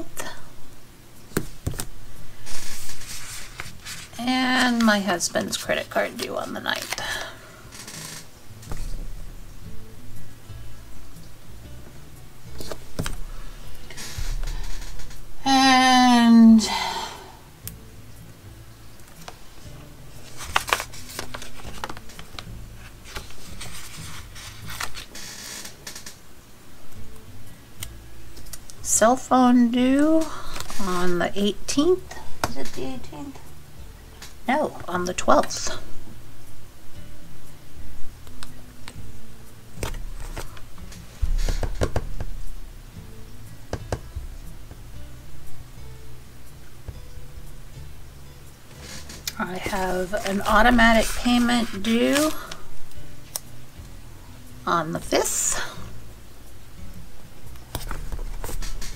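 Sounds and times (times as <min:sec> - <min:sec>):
soft background music: 0:00.0 - 0:58.9
paper sticker sheets rustling: 0:01.6 - 0:07.4, 0:20.2 - 0:25.2, 0:48.8 - 0:52.6, 0:57.8 - 0:58.9.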